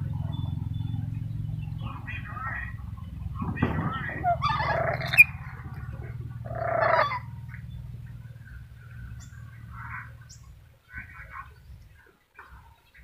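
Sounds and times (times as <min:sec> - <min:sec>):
low steady hum: 0:00.0 - 0:13.0
parrot calling harshly: 0:04.2 - 0:05.4, 0:06.5 - 0:07.3.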